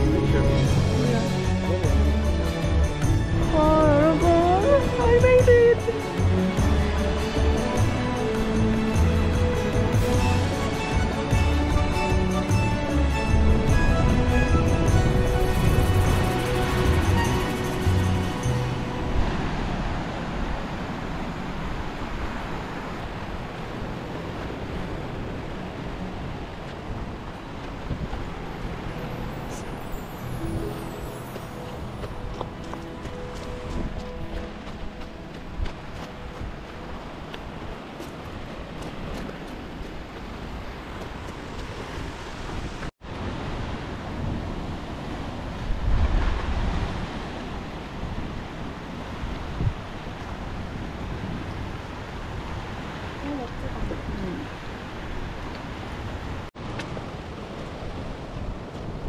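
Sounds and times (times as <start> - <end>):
wind rumbling on microphone: 0.0 - 30.6, 31.2 - 59.0
surf washing over rocks: 3.5 - 59.0
wind buffeting microphone: 31.7 - 59.0.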